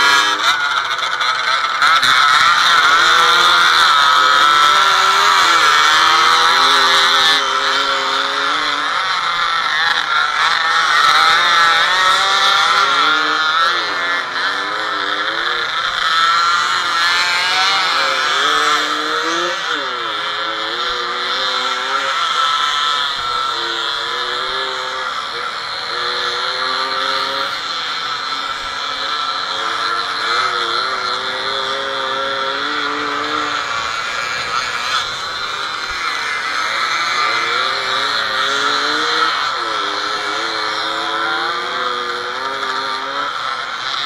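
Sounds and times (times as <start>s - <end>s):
two-stroke motorcycle engines racing: 0.0s - 44.0s.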